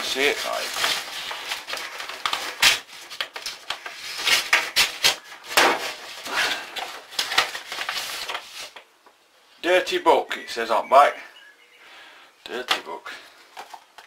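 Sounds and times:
paper envelope rustling: 0.0s - 8.9s.

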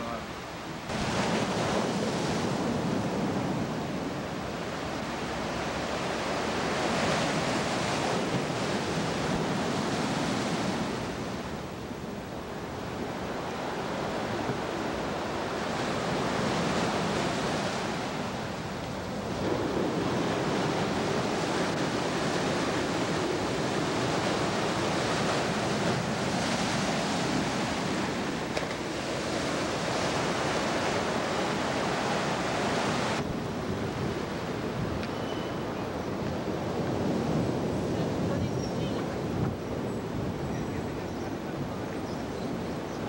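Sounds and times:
waves washing onto rocks: 0.2s - 11.8s, 13.1s - 35.1s
wind buffeting microphone: 0.7s - 43.0s.

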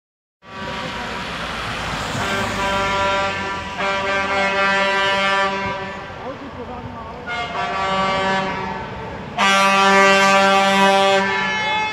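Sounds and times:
vehicle engines: 0.4s - 11.9s
tyres hissing on wet road: 0.5s - 6.7s
vehicle horns blasting: 2.0s - 6.2s, 7.2s - 11.9s.

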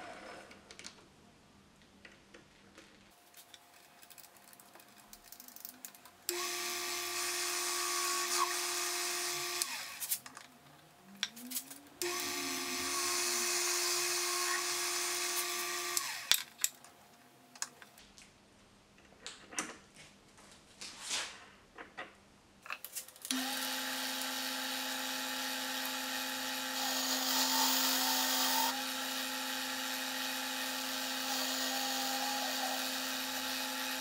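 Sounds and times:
metal lathe motor whine: 12.0s - 16.3s, 23.3s - 34.0s.

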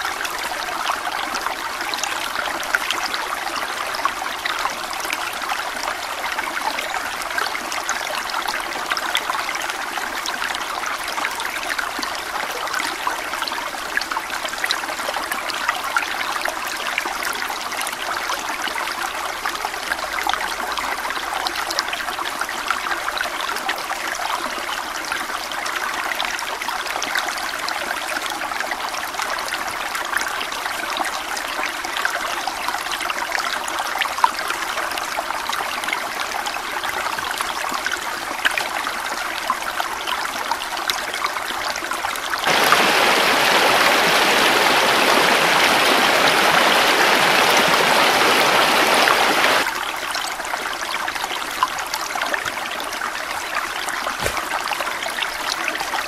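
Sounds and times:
water rushing over rocks: 42.4s - 49.7s, 54.1s - 54.6s.

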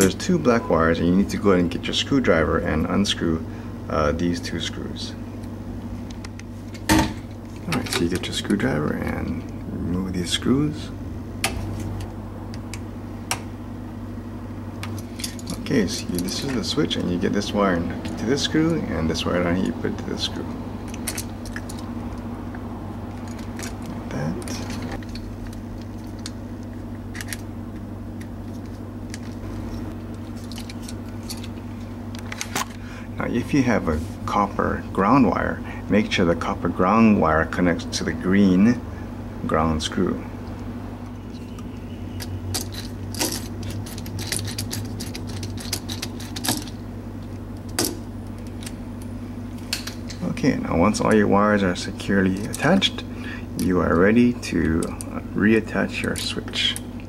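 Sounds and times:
low hum: 0.0s - 57.0s.

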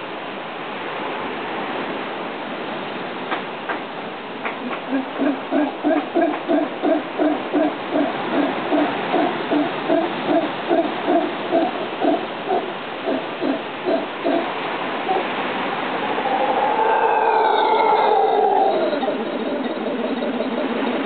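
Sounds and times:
howler monkey calling: 4.6s - 21.0s.

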